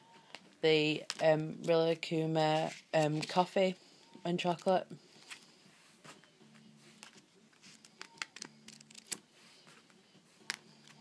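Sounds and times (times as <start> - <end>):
paper pads clicking and tapping: 7.0 - 9.2.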